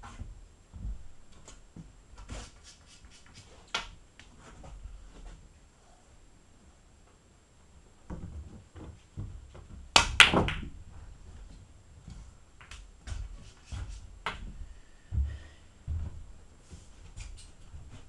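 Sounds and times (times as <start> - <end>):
billiard balls cracking together: 9.9 - 10.8.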